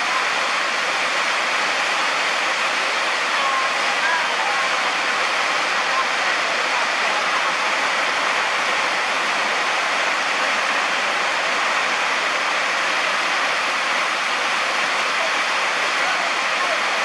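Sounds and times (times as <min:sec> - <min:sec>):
heavy rain pouring: 0:00.0 - 0:17.0.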